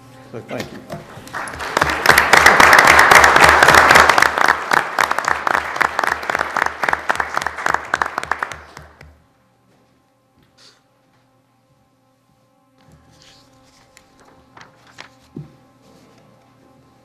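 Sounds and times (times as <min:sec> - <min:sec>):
audience applause: 0:01.2 - 0:09.0.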